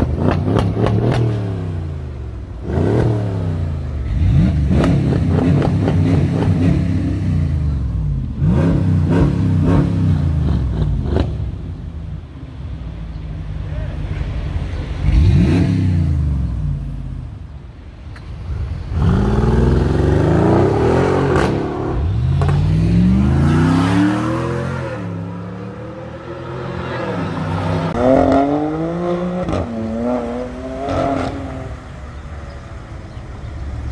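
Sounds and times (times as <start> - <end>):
car engines revving: 0.0 - 33.9.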